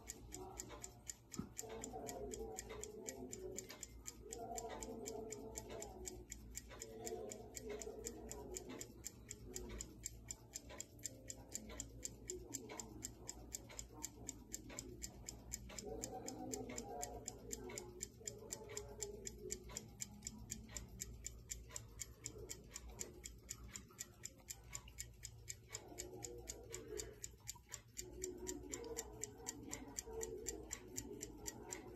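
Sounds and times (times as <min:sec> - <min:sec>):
watch ticking: 0:00.0 - 0:31.9.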